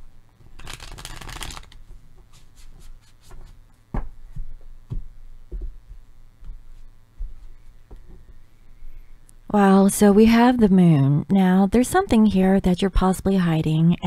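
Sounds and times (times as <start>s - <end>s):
cards shuffling flutter: 0.5s - 3.6s.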